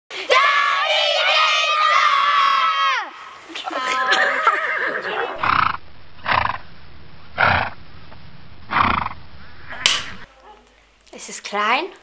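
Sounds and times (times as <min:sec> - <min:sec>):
clapperboard snapping shut: 0:09.8 - 0:10.2.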